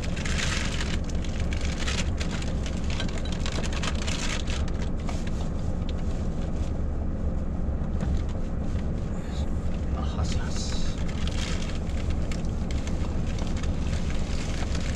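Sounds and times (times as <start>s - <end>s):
plastic packaging crinkling: 0.0s - 5.0s, 11.0s - 14.9s
truck engine idling: 0.0s - 14.9s.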